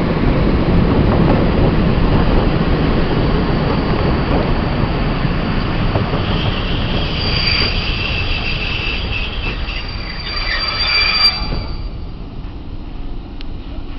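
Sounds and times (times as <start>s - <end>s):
train wheels rumbling on rail: 0.0s - 13.9s
high-pitched wheel squealing: 3.4s - 12.4s.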